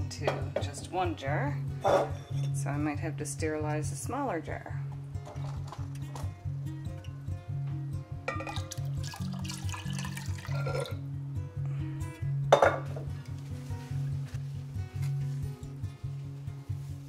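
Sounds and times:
music with repeating bass line: 5.8s - 9.1s
liquid pouring into glass jar: 8.3s - 11.0s.

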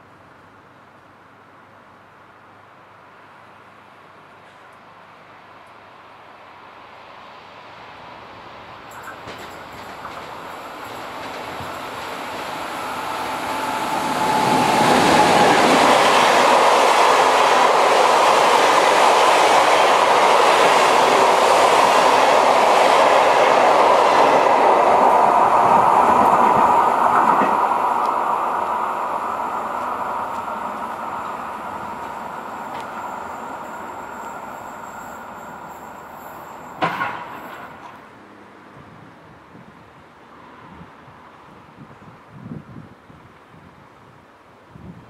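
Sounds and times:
train whine: 6.4s - 39.0s
train wheels rushing on rail: 7.4s - 38.7s.

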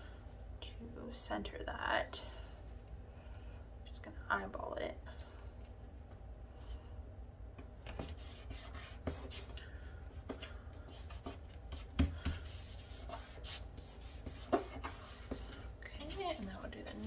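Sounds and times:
hands rubbing paper: 7.9s - 9.5s, 10.3s - 17.0s.

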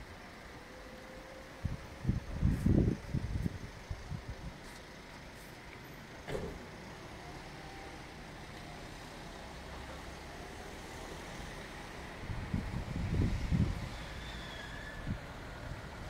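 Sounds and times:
distant traffic hum: 0.0s - 16.0s.

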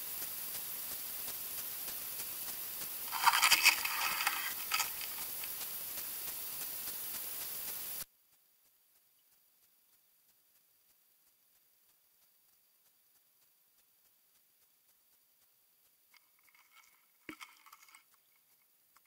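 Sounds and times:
underwater camera hiss: 0.0s - 8.1s
scraping and knocking on camera housing: 3.1s - 5.4s.

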